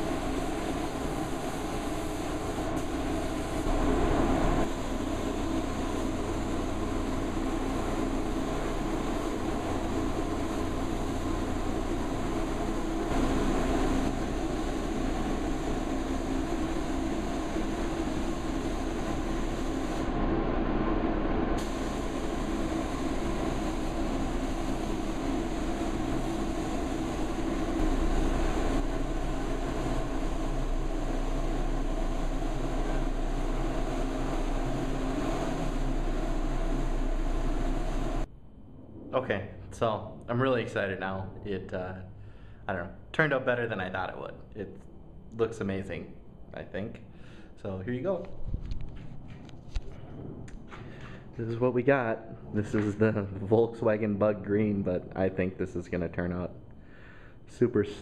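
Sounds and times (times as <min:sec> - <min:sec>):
rushing air noise: 0:00.0 - 0:40.3.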